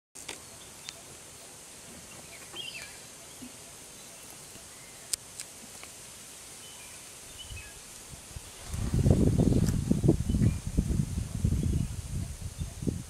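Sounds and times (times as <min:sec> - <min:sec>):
steady hiss: 0:00.2 - 0:13.0
faint bird chirps: 0:00.4 - 0:05.2.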